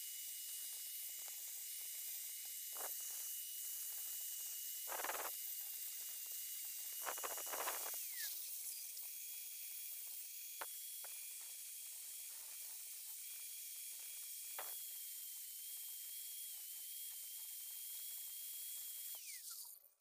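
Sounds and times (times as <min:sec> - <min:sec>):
angle grinder whining: 0:06.0 - 0:19.8.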